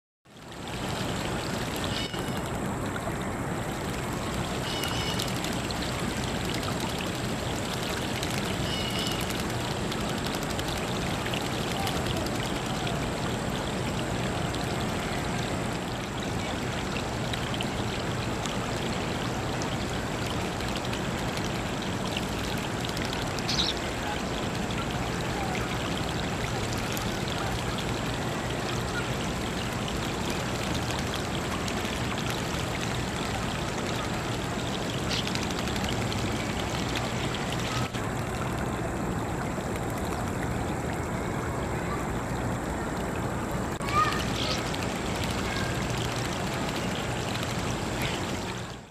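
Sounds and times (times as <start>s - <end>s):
water running over rocks: 0.3s - 48.9s
birds splashing in water: 0.4s - 48.9s
high bird chirps: 4.6s - 5.3s, 8.6s - 9.4s, 23.5s - 23.8s.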